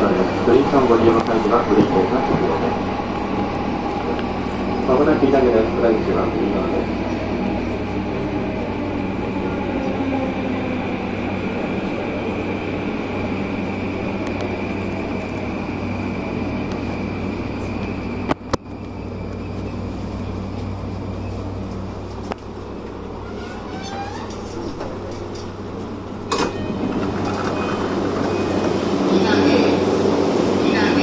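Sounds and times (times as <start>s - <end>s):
electric train slowing down: 0.0s - 31.0s.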